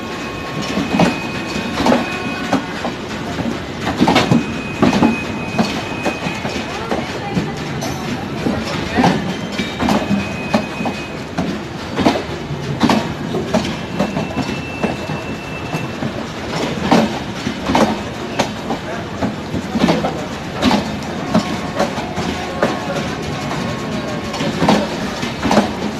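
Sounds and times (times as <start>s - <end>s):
train rumble: 0.0s - 25.9s
train wheels clacking over rail joints: 0.0s - 25.9s.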